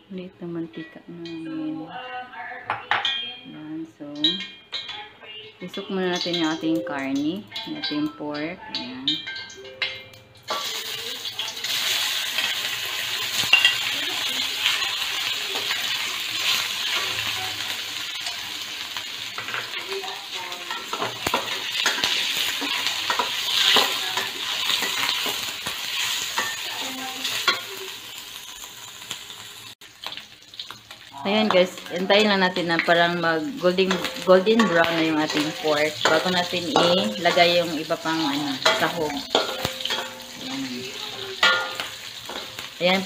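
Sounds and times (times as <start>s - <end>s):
meat sizzling in hot oil: 10.4s - 43.0s
metal spatula scraping pan: 11.7s - 27.8s, 31.4s - 43.0s.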